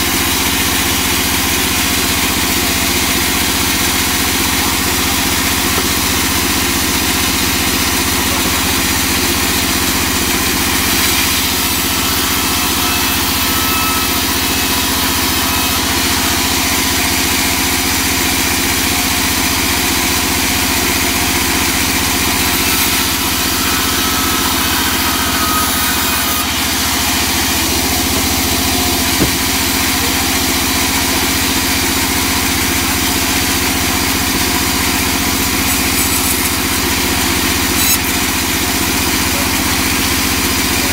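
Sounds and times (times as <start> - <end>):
band saw droning: 0.0 - 40.9
sharp knock: 29.1 - 29.6.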